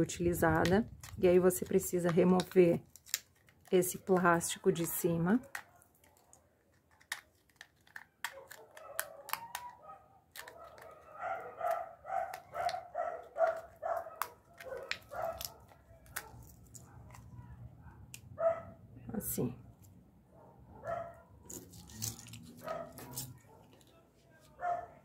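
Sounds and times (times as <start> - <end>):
lid peeling off plastic capsule: 0.6 - 4.2, 4.8 - 17.5
dog barking: 8.2 - 18.8, 20.3 - 21.4, 22.6 - 23.8, 24.6 - 25.0.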